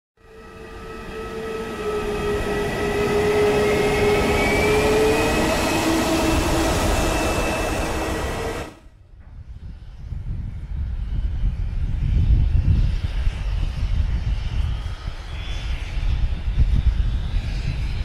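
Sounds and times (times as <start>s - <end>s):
jet engine whining rush: 0.2s - 8.9s.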